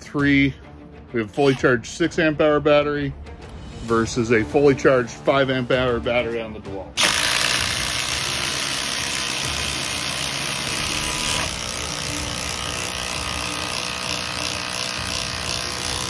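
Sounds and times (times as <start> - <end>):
impact drivers hammering screws: 7.0 - 16.0.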